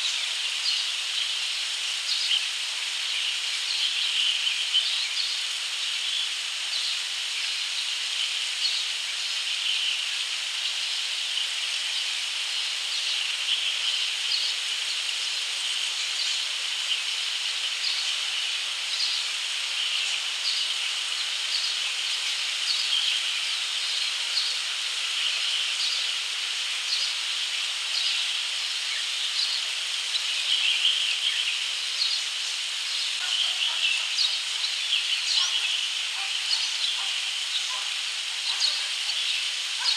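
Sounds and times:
cicada chorus hissing: 0.0s - 39.9s
fledgling birds chirping: 33.1s - 39.9s.

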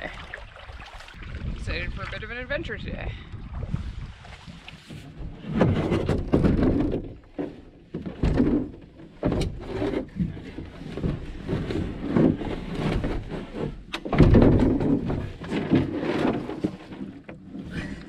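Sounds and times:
hollow knocks of canoe hull: 4.3s - 17.6s.

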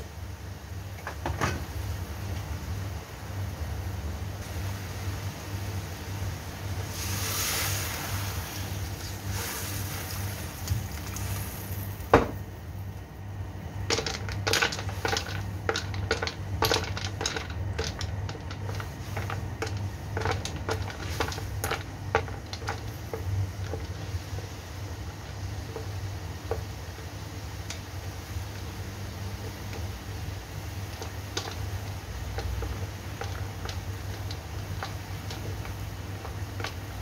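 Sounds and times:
steady low hum: 0.0s - 37.0s
short hiss: 6.9s - 10.3s.

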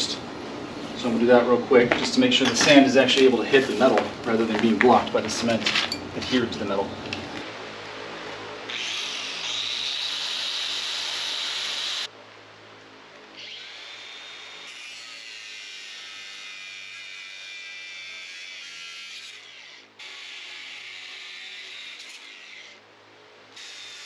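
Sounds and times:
power tool high whine: 8.6s - 12.1s, 13.4s - 22.8s.

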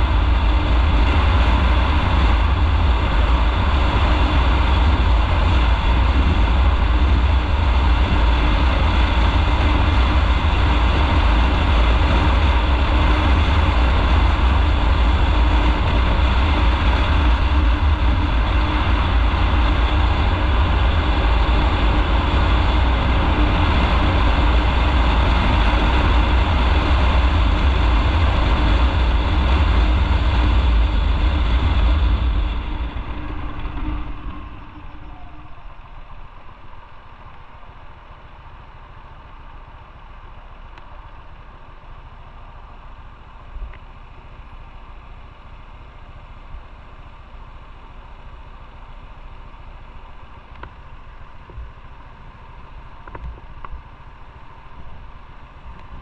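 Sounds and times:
wind rumble on microphone: 0.0s - 38.2s, 50.1s - 56.0s
motorcycle engine: 0.0s - 56.0s.

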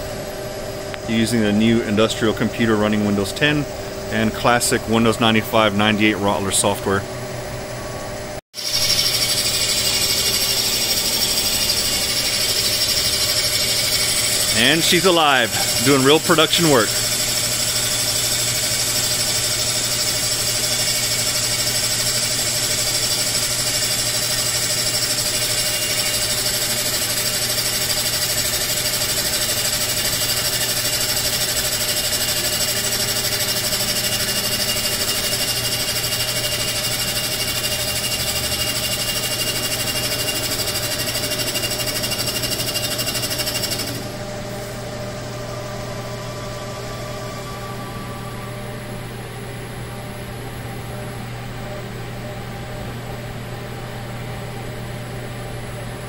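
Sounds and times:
high steady whines: 0.0s - 56.0s
boring machine spindle running: 8.6s - 49.2s.

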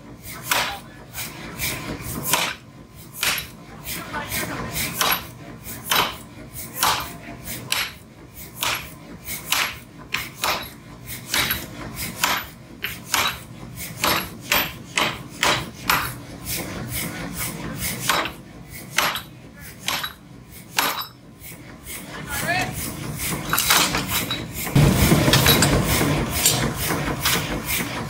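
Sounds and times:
hammer striking iron: 2.2s - 2.6s, 3.2s - 3.6s, 5.0s - 8.0s, 8.6s - 16.2s, 18.0s - 21.2s.

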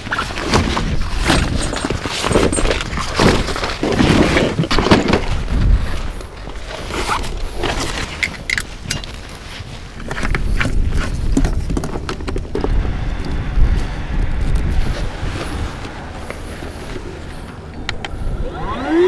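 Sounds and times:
thumps knocks and clatter: 0.0s - 6.6s.

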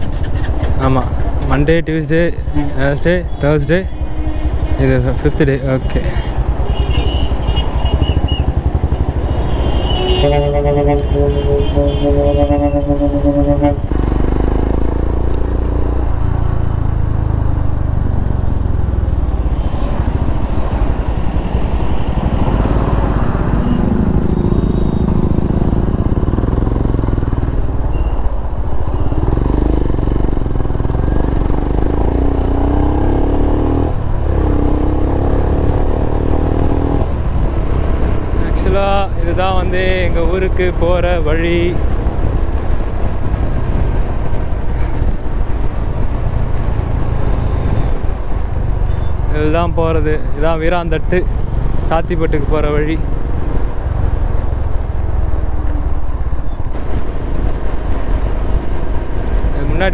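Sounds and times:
motorcycle engine rumble: 0.0s - 59.9s
vehicle horn: 2.5s - 8.4s, 9.2s - 14.0s, 23.6s - 25.3s.

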